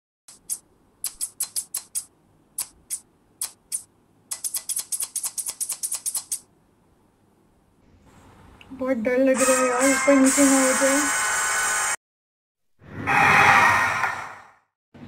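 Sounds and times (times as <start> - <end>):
scissors snipping: 0.3 - 6.5.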